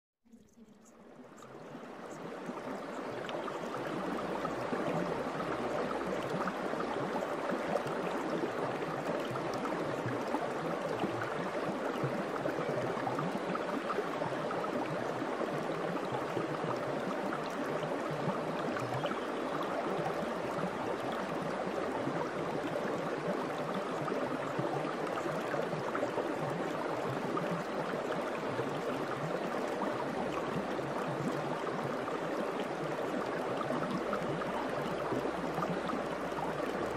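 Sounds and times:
stream water rushing and babbling: 0.5s - 36.9s.

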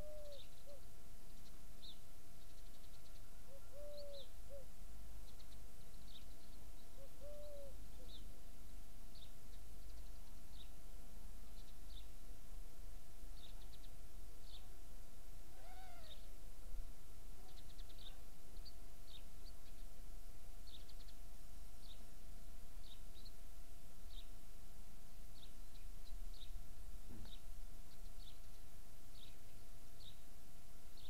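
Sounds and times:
low bird call: 0.0s - 0.8s, 3.4s - 4.7s, 6.9s - 8.3s, 15.6s - 16.3s
small birds chirping: 0.0s - 10.8s, 11.4s - 12.2s, 13.3s - 14.8s, 15.6s - 16.3s, 17.4s - 20.0s, 20.6s - 22.1s, 22.8s - 24.4s, 25.3s - 30.3s
faint steady hum: 0.0s - 31.0s.

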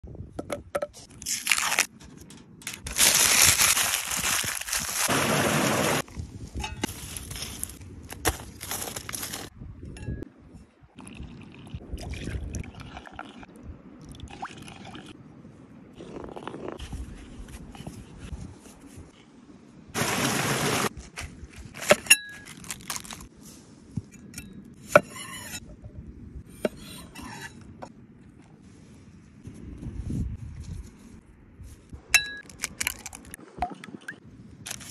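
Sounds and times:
aluminium foil crinkling: 1.2s - 5.1s, 6.9s - 9.5s, 21.0s - 23.3s.

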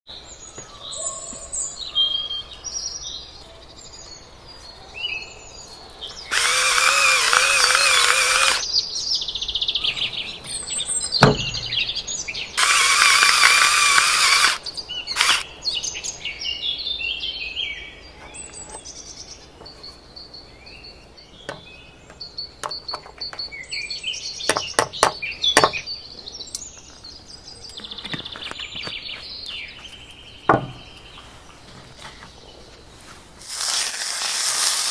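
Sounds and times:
small birds chirping: 0.1s - 33.3s
small electric motor whirring: 6.3s - 8.6s, 12.6s - 14.6s, 15.2s - 15.4s.

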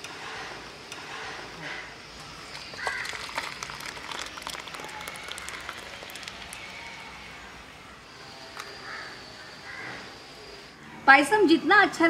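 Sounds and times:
thick liquid pouring into steel bowl: 2.4s - 7.5s
splashing and splattering: 2.5s - 7.3s.

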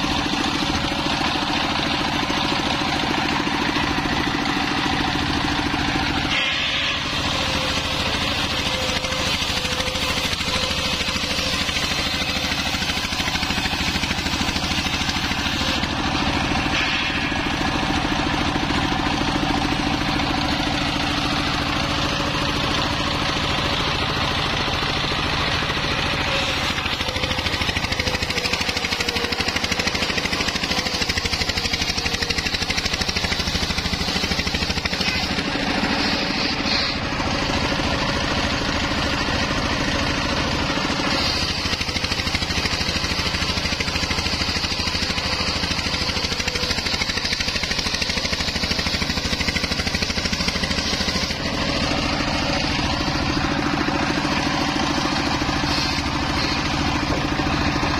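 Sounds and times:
diesel engine running: 0.0s - 57.9s
saw blade rasping through wood: 2.1s - 21.2s, 25.1s - 37.9s, 40.8s - 57.6s.

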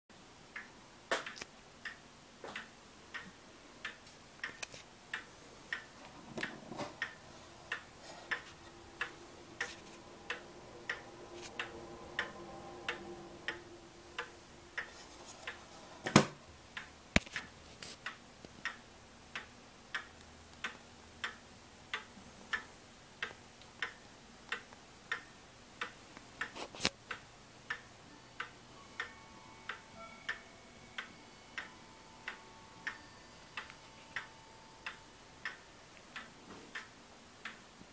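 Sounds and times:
clock ticking: 0.4s - 37.9s.

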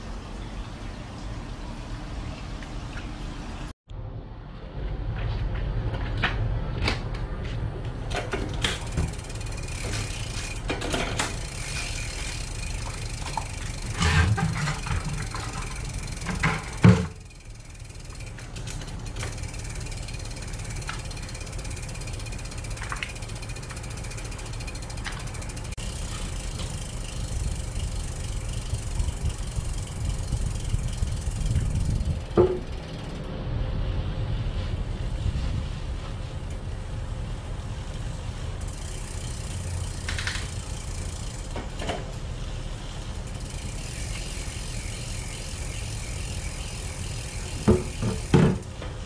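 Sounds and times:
bike chain running over cassette: 8.1s - 33.4s, 34.2s - 49.0s.

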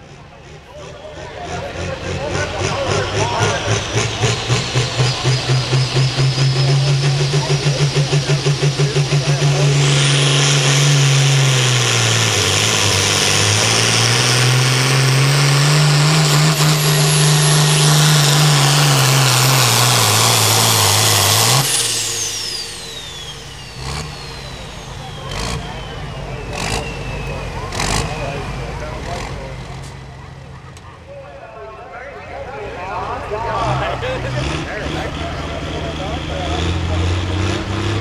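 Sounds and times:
diesel tractor engine at full throttle: 0.0s - 38.0s
turbo whistle: 9.2s - 14.3s, 15.7s - 28.8s.

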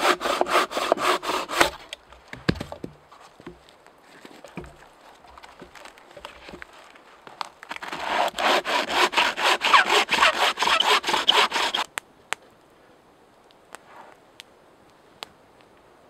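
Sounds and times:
bow saw cutting a branch: 0.0s - 2.0s, 7.7s - 11.9s.

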